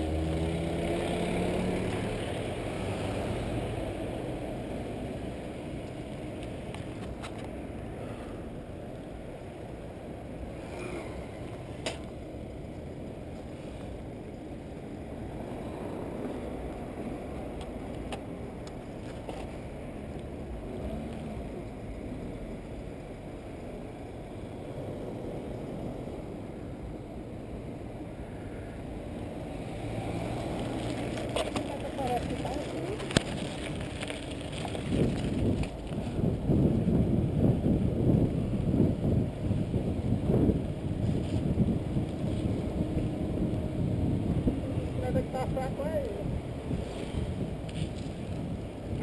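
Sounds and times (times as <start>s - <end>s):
road noise: 0.0s - 49.0s
wind buffeting microphone: 30.0s - 49.0s.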